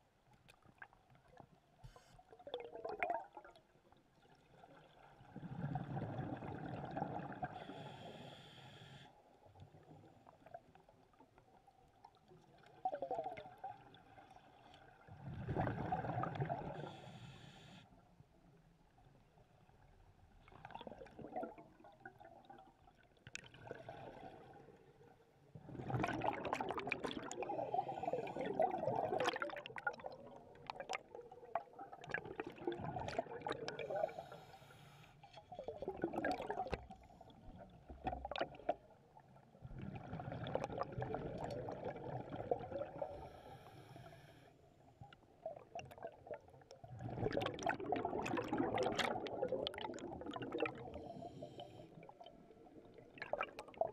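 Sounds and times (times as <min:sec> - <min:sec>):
underwater bubbling and rushing water: 0:00.1 - 0:53.9.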